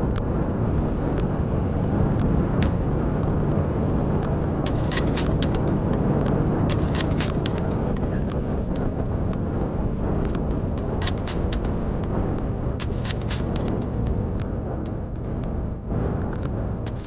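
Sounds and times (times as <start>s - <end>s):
wind rumbling on microphone: 0.0s - 17.0s
sharp ticks: 10.2s - 15.6s.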